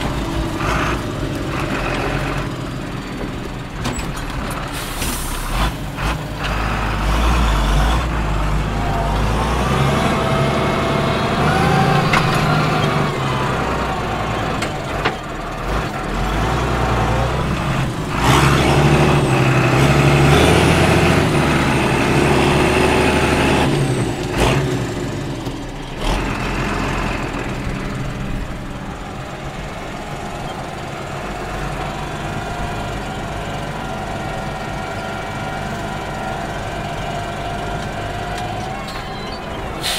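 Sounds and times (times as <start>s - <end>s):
tractor diesel engine under load: 0.0s - 39.9s
faint high whistle: 38.8s - 39.9s.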